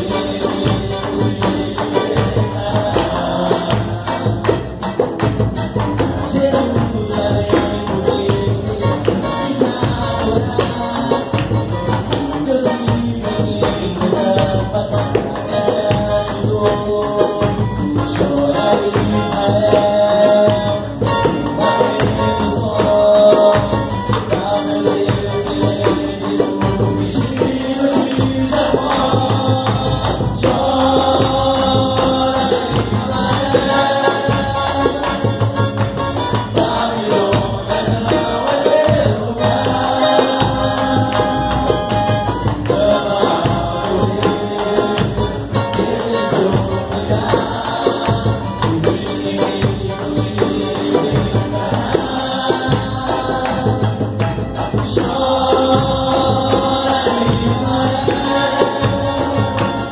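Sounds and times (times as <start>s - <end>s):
hand drum: 0.0s - 59.9s
men singing: 0.0s - 59.9s
pandeiro with jingles: 0.0s - 59.9s
strummed cavaquinho: 0.0s - 59.9s.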